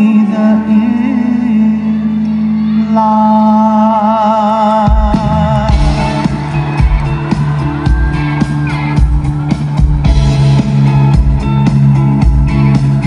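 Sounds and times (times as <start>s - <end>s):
bass guitar: 4.8s - 13.0s
electric guitar: 4.9s - 13.0s
steady drum beat: 4.9s - 13.0s.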